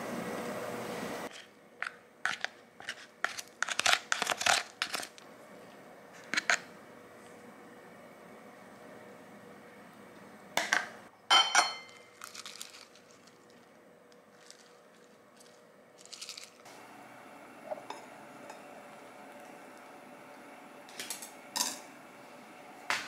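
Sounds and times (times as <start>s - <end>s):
glass container clinking: 11.3s - 12.2s
greens crunching: 12.0s - 16.7s.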